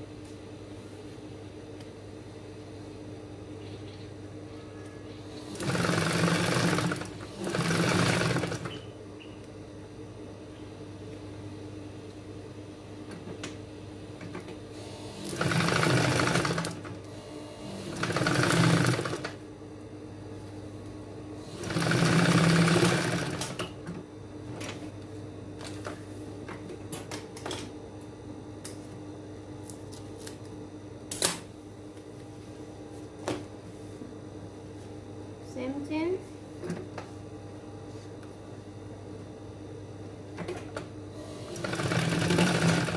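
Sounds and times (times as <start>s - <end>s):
sewing machine humming: 5.3s - 8.9s, 14.8s - 19.4s, 21.4s - 23.7s, 41.2s - 42.9s
sewing machine stitching: 5.5s - 8.8s, 15.2s - 16.9s, 17.7s - 19.4s, 21.6s - 23.6s, 41.4s - 42.9s.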